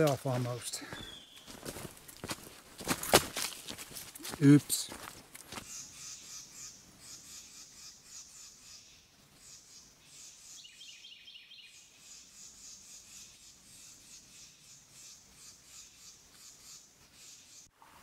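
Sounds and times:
bird notes: 0.2 - 1.7.

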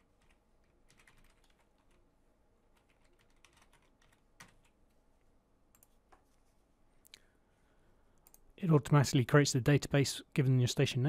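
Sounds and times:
typing on a computer keyboard: 0.2 - 2.0, 2.7 - 4.8.

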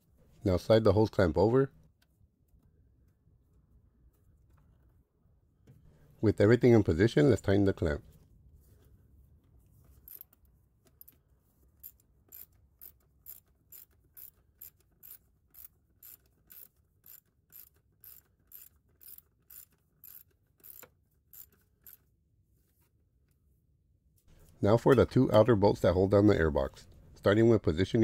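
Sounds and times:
faint ratchet clicking: 11.8 - 22.1.

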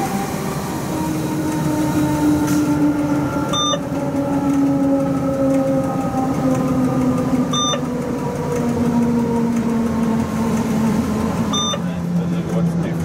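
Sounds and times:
electric locomotive drive whine: 0.0 - 13.0
short high beep: 3.5 - 3.8, 7.6 - 7.8, 11.5 - 11.9.

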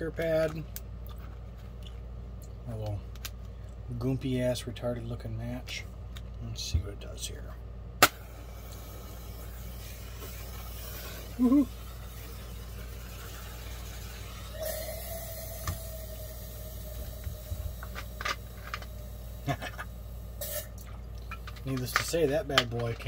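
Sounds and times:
burning match hissing: 8.0 - 19.8.

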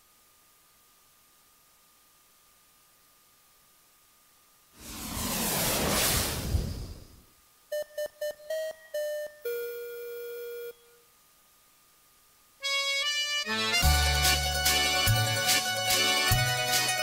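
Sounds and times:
whoosh: 4.8 - 7.3.

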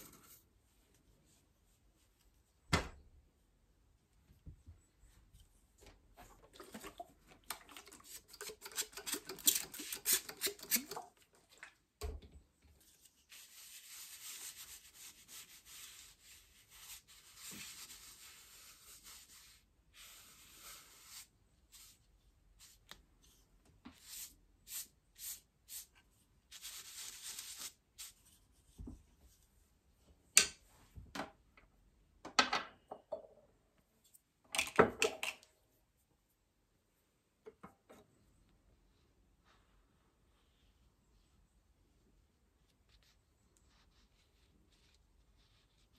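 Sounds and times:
paintbrush rubbing on paper: 12.8 - 28.8, 42.6 - 45.9.

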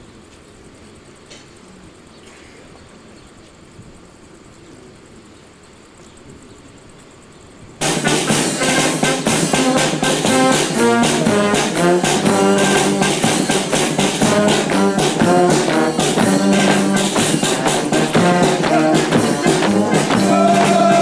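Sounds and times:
brass music over steady beat: 7.8 - 21.0.

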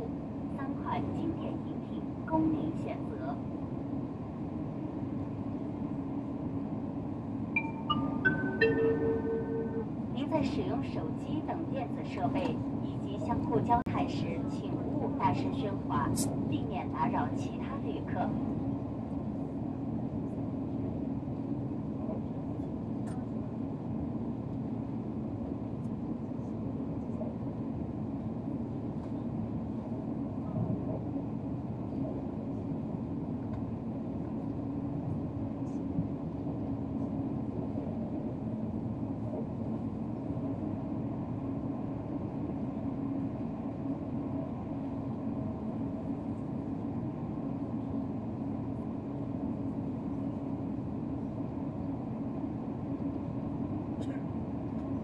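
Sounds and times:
train rumble and hum: 0.0 - 55.0.

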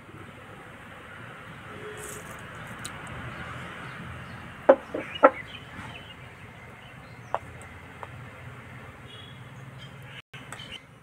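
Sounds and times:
hen clucking: 4.7 - 5.4.

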